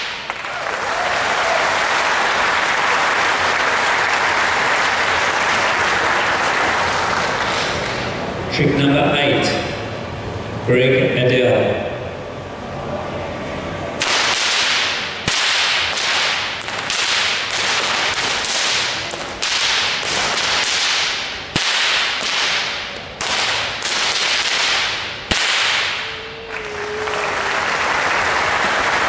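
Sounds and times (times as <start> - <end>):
whips cracking: 0.0 - 0.4, 14.0 - 26.2
applause: 0.0 - 8.1, 26.1 - 29.0.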